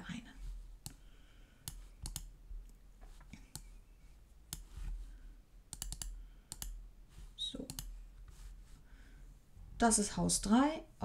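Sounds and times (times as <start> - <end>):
computer mouse clicking: 1.6 - 2.3, 4.5 - 4.7, 5.7 - 6.8, 7.6 - 8.4.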